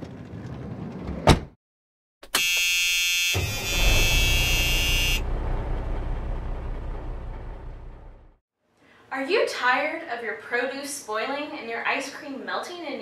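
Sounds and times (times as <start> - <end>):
loud buzzer-like tone: 2.2 - 5.4
rumbling noise: 3.5 - 8.4.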